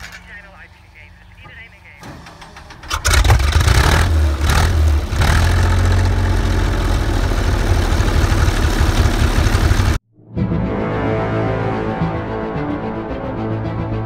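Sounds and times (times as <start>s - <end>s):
armoured vehicle engine revving: 2.0s - 10.0s.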